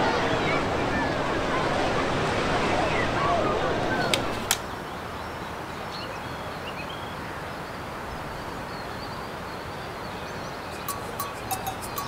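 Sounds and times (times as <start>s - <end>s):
wind: 0.0s - 12.0s
faint bird chirps: 8.8s - 12.0s.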